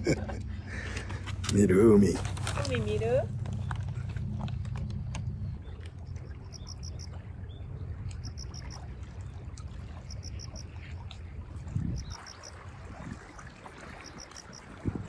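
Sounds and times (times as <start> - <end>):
wind rumbling on microphone: 0.0 - 15.0
bird chirping: 6.5 - 8.8.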